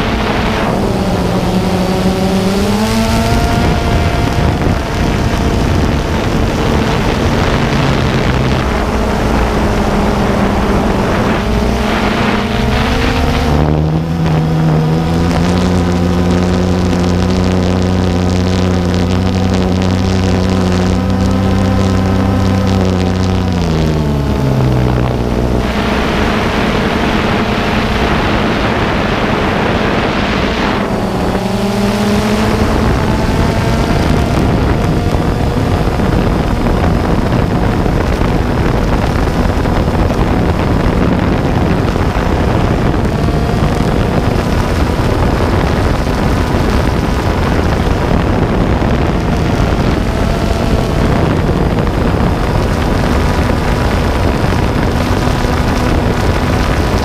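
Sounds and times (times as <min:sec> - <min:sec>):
drone propellers whining: 0:00.0 - 0:57.0
wind rushing over microphone: 0:00.0 - 0:57.0.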